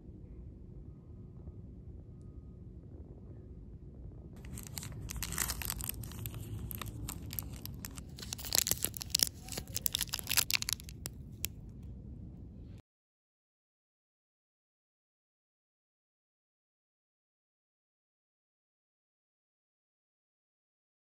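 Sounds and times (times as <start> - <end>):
foil wrapper crinkling: 4.4 - 11.5
wrapper tearing: 4.4 - 11.5.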